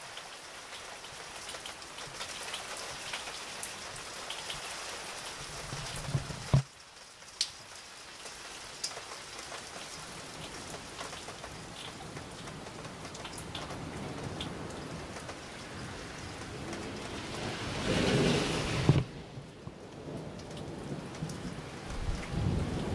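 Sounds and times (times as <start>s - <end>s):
raindrops tapping close by: 0.0s - 22.9s
steady rain falling: 0.0s - 22.9s
low rumble of thunder: 11.6s - 22.9s.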